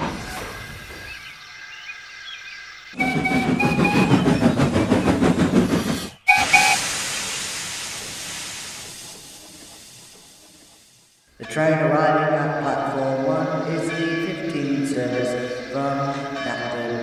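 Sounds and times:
steam locomotive chuffing: 0:02.9 - 0:17.0
train whistle: 0:03.0 - 0:04.5, 0:06.2 - 0:07.0
hissing steam release: 0:03.0 - 0:11.3.

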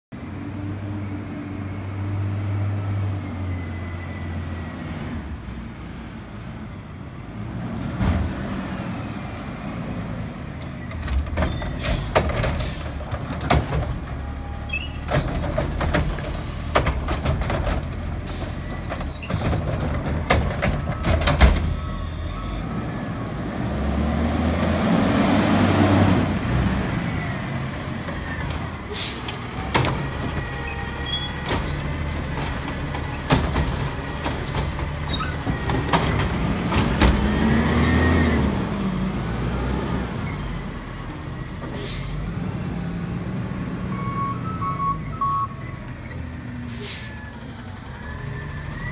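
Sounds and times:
high squeal: 0:10.2 - 0:12.2, 0:45.6 - 0:48.9.

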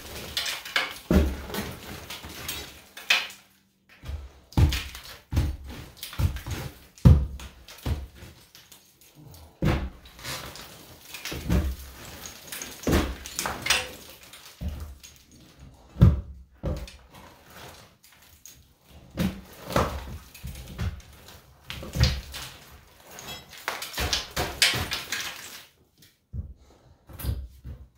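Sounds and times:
hammer chipping stucco: 0:04.0 - 0:17.8, 0:19.0 - 0:25.6.

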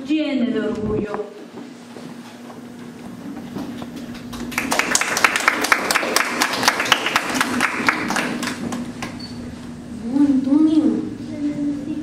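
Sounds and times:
people clapping: 0:03.7 - 0:09.2.

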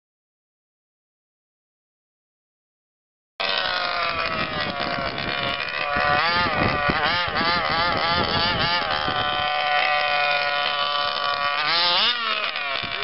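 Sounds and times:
model car engine revving: 0:03.4 - 0:13.0.

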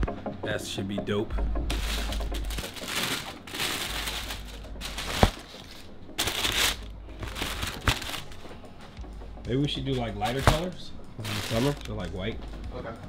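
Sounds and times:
tissue paper rustling and crinkling: 0:01.7 - 0:08.6, 0:11.2 - 0:12.1.

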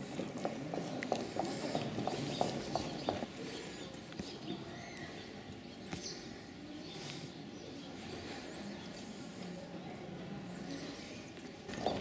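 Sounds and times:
footsteps on stone paving: 0:00.0 - 0:03.4
small birds chirping: 0:00.8 - 0:12.0.

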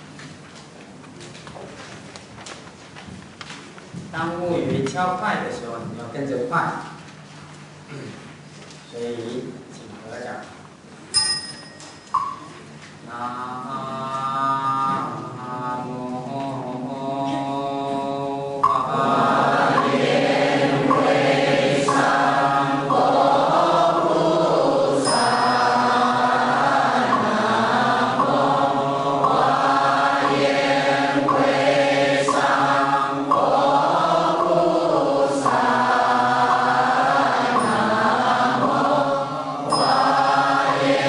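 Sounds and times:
bright ringing strike: 0:11.1 - 0:12.5, 0:25.0 - 0:26.4, 0:37.6 - 0:38.2, 0:39.7 - 0:40.8
group chanting in unison: 0:13.1 - 0:41.0.

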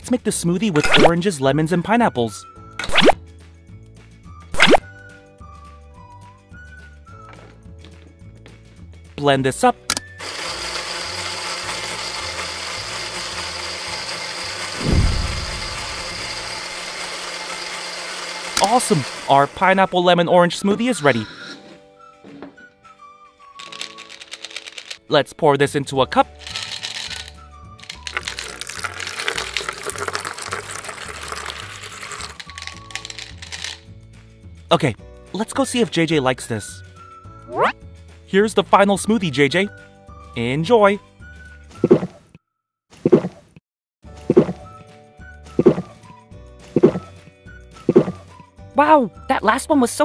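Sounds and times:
background music: 0:00.0 - 0:42.0, 0:44.1 - 0:50.0
toy blender whirring: 0:09.9 - 0:20.0, 0:23.5 - 0:25.0, 0:26.2 - 0:33.9
small balls rattling in plastic jug: 0:23.6 - 0:25.0, 0:26.4 - 0:33.8.

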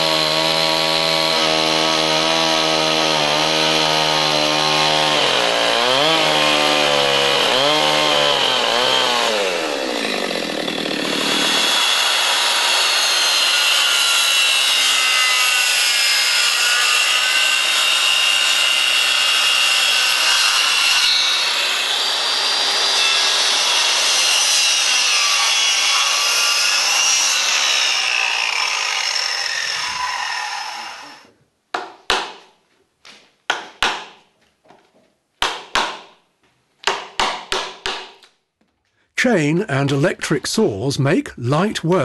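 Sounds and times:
circular saw cutting timber: 0:00.0 - 0:31.3
hammer striking chisel: 0:31.7 - 0:32.5, 0:33.5 - 0:34.2, 0:35.4 - 0:36.2, 0:36.8 - 0:38.3.

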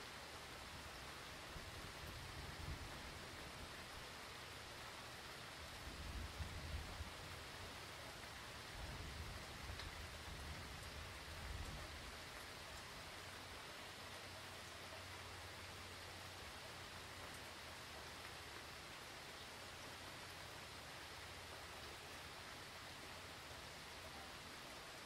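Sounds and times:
heavy rain hissing: 0:00.0 - 0:25.0.

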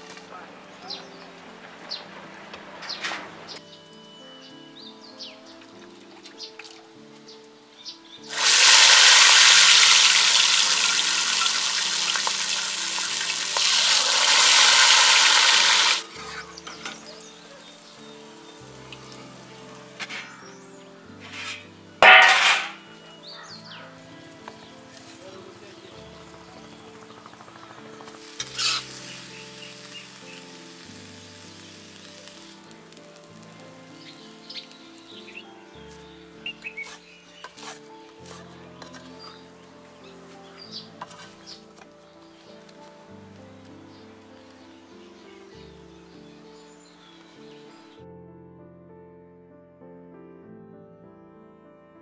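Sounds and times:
soft background music chords: 0:00.0 - 0:08.4, 0:14.9 - 0:52.0
faint sizzling hiss: 0:00.0 - 0:48.0
deep-frying sizzle in hot oil: 0:08.2 - 0:17.2, 0:27.8 - 0:35.3.

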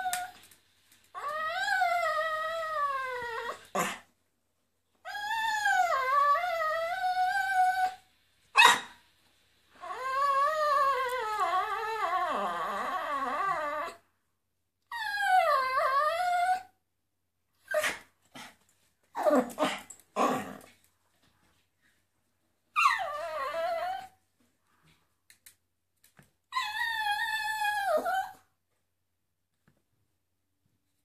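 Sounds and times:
dog yipping: 0:08.6 - 0:09.0.

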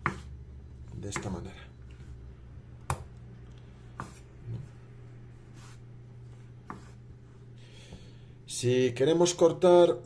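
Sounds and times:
steady low hum: 0:00.0 - 0:10.0
soft rubbing on wood: 0:03.6 - 0:07.6.

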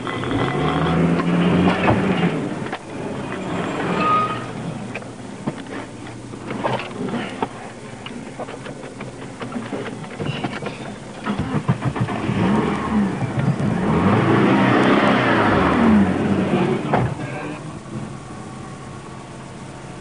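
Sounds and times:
car engine revving: 0:00.0 - 0:07.4, 0:10.6 - 0:19.6
clicks and knocks inside car: 0:04.9 - 0:12.4.

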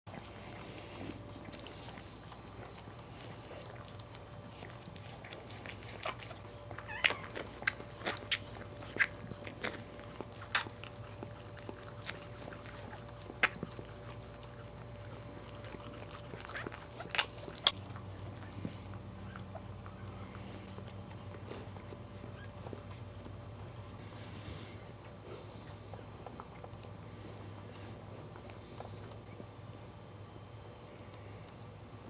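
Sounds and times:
dog licking wet puppy: 0:00.1 - 0:23.4
faint steady hum: 0:00.1 - 0:32.0.

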